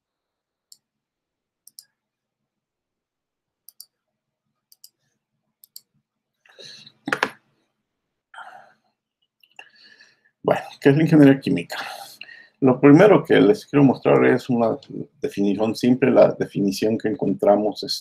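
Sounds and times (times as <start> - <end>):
computer mouse clicking: 1.6 - 1.9, 3.7 - 4.0, 4.7 - 5.9.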